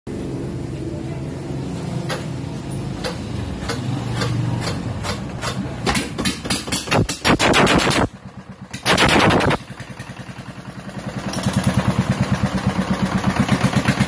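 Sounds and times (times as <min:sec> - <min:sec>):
sharp cracks: 0:05.8 - 0:09.9
diesel engine running: 0:07.9 - 0:14.0.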